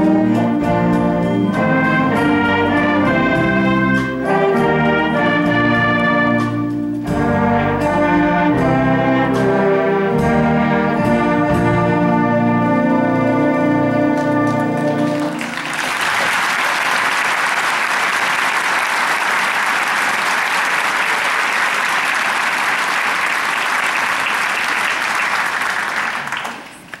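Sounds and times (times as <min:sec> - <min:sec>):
jazz brass and saxophones chord: 0:00.0 - 0:15.6
audience applauding: 0:14.8 - 0:27.0.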